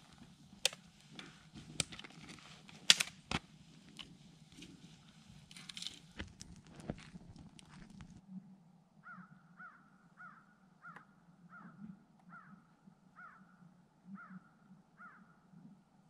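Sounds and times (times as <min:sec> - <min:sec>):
distant bird calling: 0:09.0 - 0:15.4.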